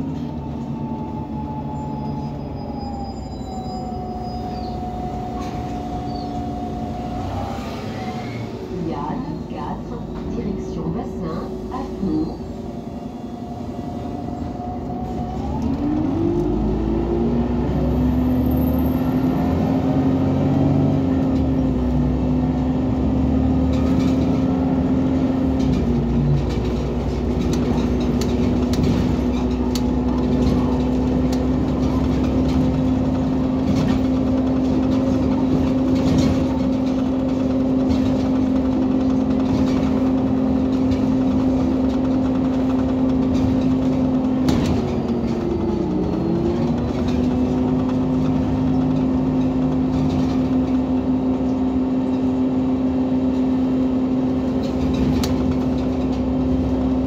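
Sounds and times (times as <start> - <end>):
bus engine running: 0.0 - 57.0.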